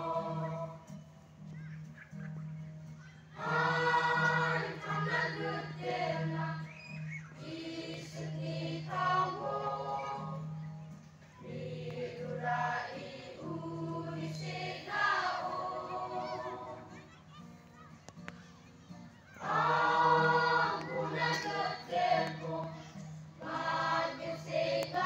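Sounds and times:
choir singing: 0.0s - 0.9s, 3.4s - 10.6s, 11.4s - 16.9s, 19.4s - 25.0s.

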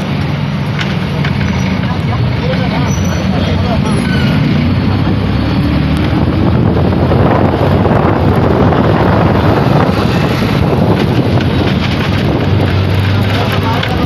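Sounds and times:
road noise: 0.0s - 14.0s
vehicle engine: 0.0s - 14.0s
wind buffeting microphone: 3.5s - 14.0s.

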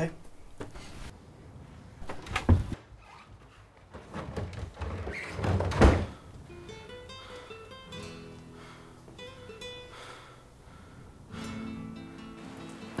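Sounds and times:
door thud: 4.1s - 6.2s
plucked guitar music: 6.4s - 10.4s, 11.3s - 13.0s.

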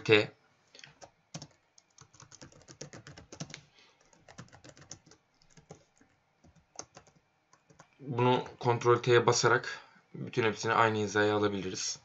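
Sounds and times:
computer keyboard typing: 0.9s - 8.0s.

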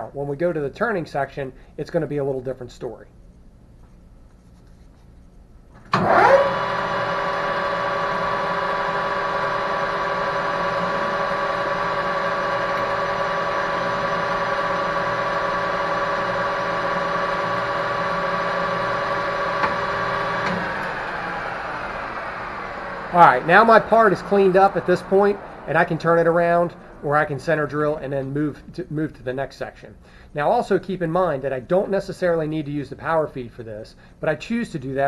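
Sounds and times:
lathe tool cutting metal: 6.0s - 28.4s
metal lathe motor whining: 6.0s - 28.4s.

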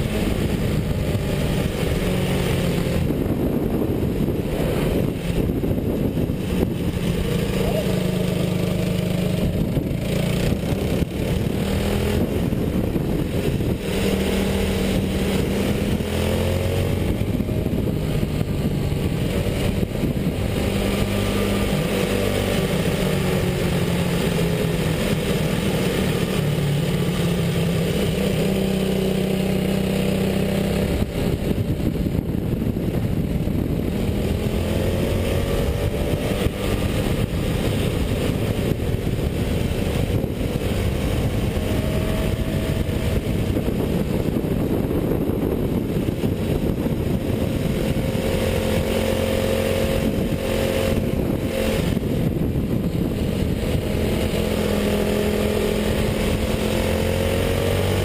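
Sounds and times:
go-kart engine revving: 0.0s - 58.0s.

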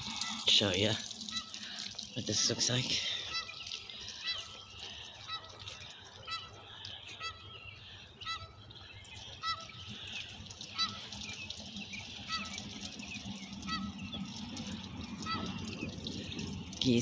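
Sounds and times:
geese honking: 2.4s - 16.7s.

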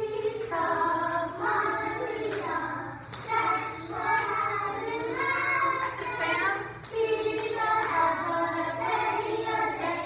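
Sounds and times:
children singing: 0.0s - 10.0s
hands clapping: 1.3s - 9.0s.

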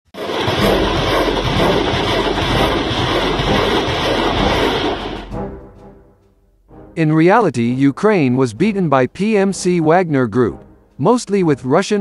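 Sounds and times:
loud rushing roar: 0.1s - 5.4s.

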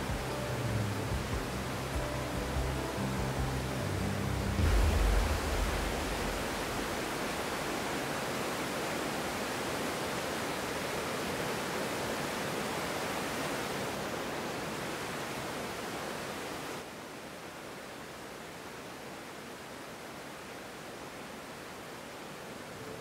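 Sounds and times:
waterfall rushing: 0.0s - 16.9s
low rumble: 2.0s - 7.9s.

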